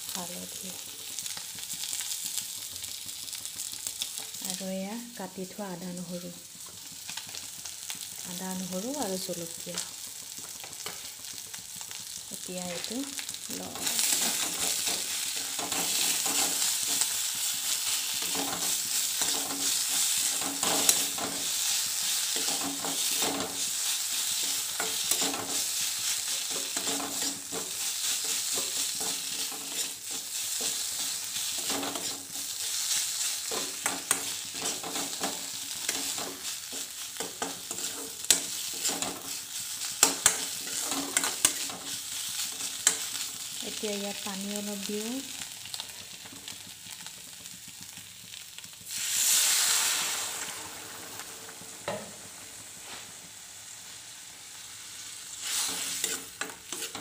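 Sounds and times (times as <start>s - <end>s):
food sizzling in oil: 0.0s - 57.0s
metal spoon stirring and scraping: 13.8s - 17.2s, 18.2s - 32.7s, 33.4s - 39.4s, 40.0s - 43.2s, 55.5s - 57.0s.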